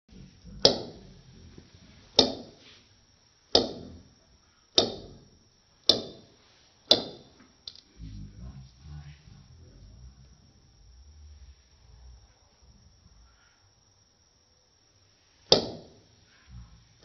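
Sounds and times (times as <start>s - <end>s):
small ball bouncing on desktop: 4.8s - 5.1s, 5.9s - 6.3s, 6.9s - 7.8s, 15.5s - 16.0s.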